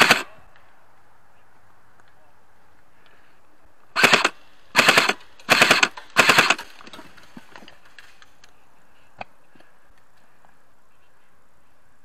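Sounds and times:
airsoft rifle full-auto bursts: 0:00.0 - 0:00.3, 0:04.0 - 0:06.7.

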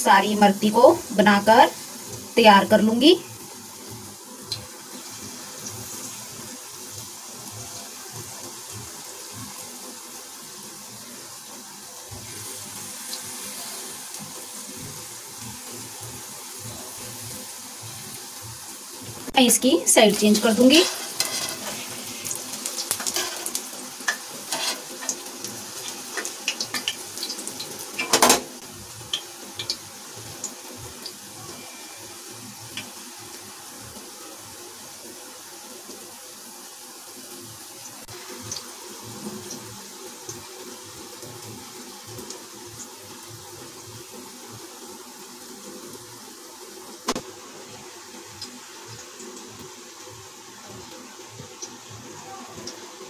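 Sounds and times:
frying in hot oil sizzle: 0:00.0 - 0:53.0
spatula scraping pan: 0:20.3 - 0:25.2.

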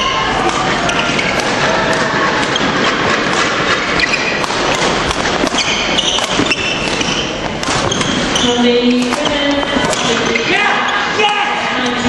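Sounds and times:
crowd murmur: 0:00.0 - 0:06.0
racket hitting shuttlecock: 0:00.0 - 0:10.5
shoes squeaking on wooden floor: 0:02.5 - 0:11.1.

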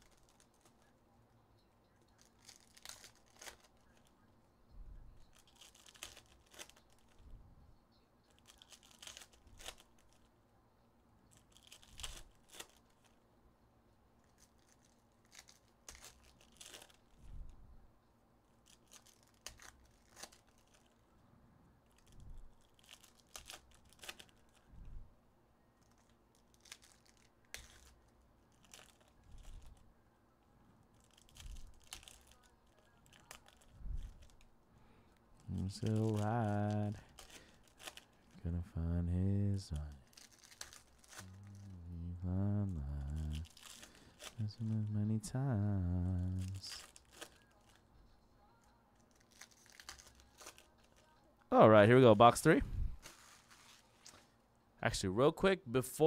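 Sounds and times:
foil wrappers tearing and crinkling: 0:00.0 - 0:00.9, 0:02.1 - 0:04.1, 0:05.2 - 0:07.2, 0:08.3 - 0:10.3, 0:11.3 - 0:13.2, 0:14.2 - 0:17.2, 0:18.6 - 0:21.0, 0:21.9 - 0:24.7, 0:25.8 - 0:29.8, 0:30.9 - 0:34.5, 0:35.4 - 0:38.3, 0:39.7 - 0:41.8, 0:42.6 - 0:45.0, 0:45.8 - 0:47.9, 0:48.5 - 0:51.3, 0:53.0 - 0:54.3.

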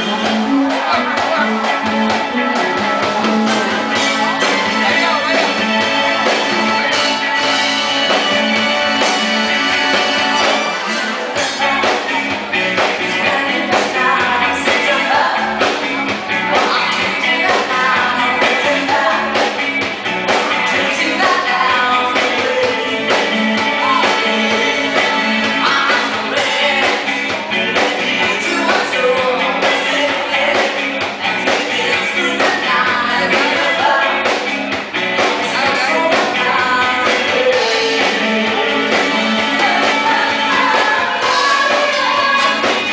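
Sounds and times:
man singing into a microphone: 0:00.0 - 0:04.2, 0:11.2 - 0:15.8, 0:16.5 - 0:19.6, 0:20.3 - 0:34.4, 0:35.3 - 0:42.9
drum kit: 0:00.0 - 0:42.9
electric guitar: 0:00.0 - 0:42.9.

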